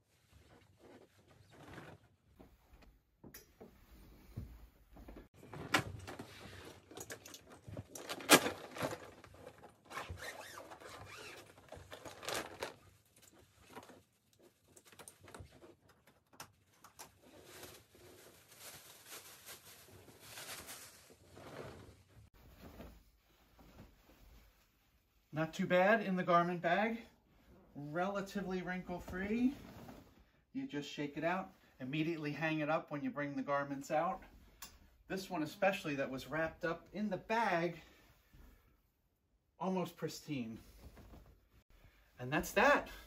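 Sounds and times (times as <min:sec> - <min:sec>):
plastic wrap rustling: 0:05.4 - 0:22.8.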